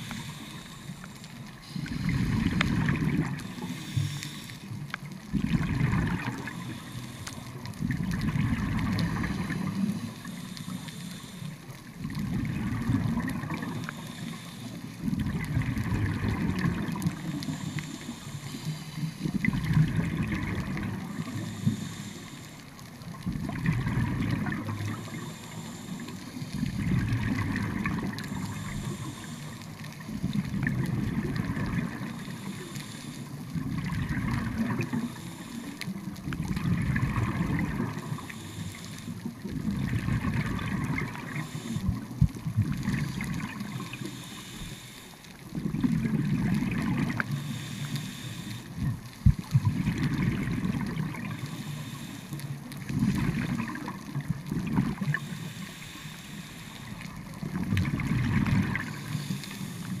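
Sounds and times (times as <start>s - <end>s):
diver breathing through regulator: 0.0s - 4.9s, 5.9s - 7.7s, 9.0s - 11.8s, 13.6s - 15.2s, 16.6s - 22.9s, 23.8s - 30.0s, 31.4s - 33.4s, 34.4s - 36.1s, 37.1s - 39.5s, 41.1s - 42.4s, 43.7s - 45.5s, 47.0s - 48.9s, 51.3s - 53.3s, 54.9s - 57.5s, 58.7s - 60.0s
exhaled bubbles rumbling: 1.6s - 3.7s, 4.7s - 6.7s, 7.5s - 10.3s, 11.8s - 14.0s, 15.0s - 17.7s, 19.0s - 21.5s, 23.0s - 25.3s, 26.3s - 29.1s, 29.8s - 32.5s, 33.3s - 35.2s, 35.9s - 38.4s, 39.2s - 44.0s, 45.4s - 47.5s, 48.8s - 51.6s, 52.6s - 55.3s, 57.0s - 59.3s.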